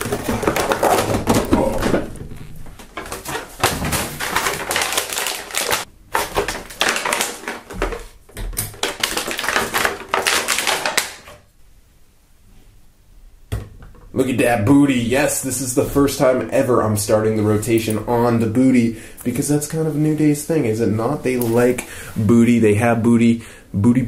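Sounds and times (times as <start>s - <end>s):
plastic packaging crinkling: 0.0s - 11.5s.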